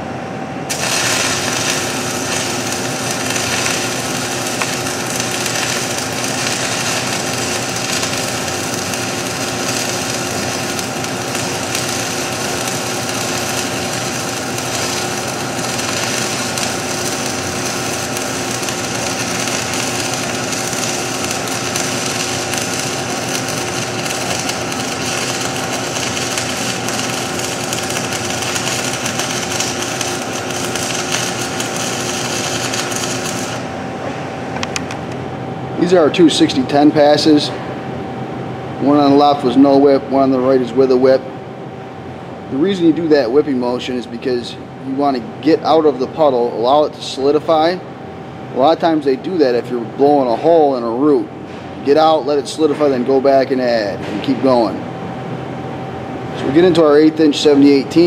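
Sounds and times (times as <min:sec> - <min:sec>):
welding arc crackling sizzle: 0:00.7 - 0:34.0, 0:51.9 - 0:54.8, 0:55.6 - 0:58.0.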